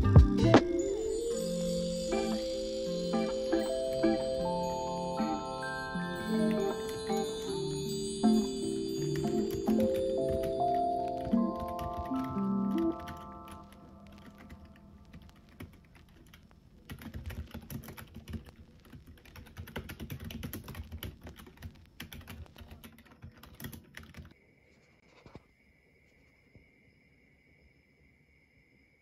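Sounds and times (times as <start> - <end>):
faint steady high tone: 0.0 - 15.7
fast keyboard typing: 5.2 - 24.4.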